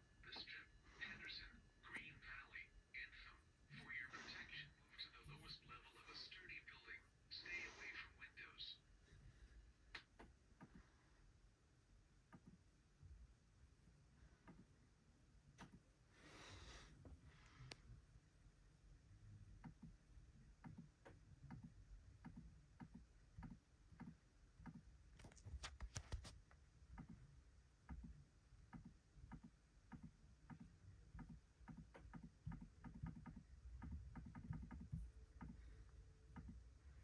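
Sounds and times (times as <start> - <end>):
faint irregular clicks: 9.8 - 11.0, 14.3 - 14.8, 15.4 - 15.9, 19.4 - 37.0.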